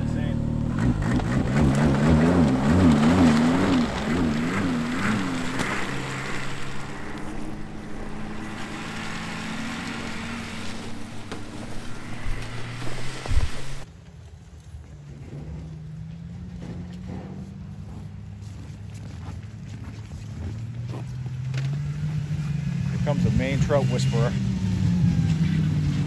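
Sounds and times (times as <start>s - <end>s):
snowmobile engine revving: 0.0s - 13.8s, 19.7s - 26.0s.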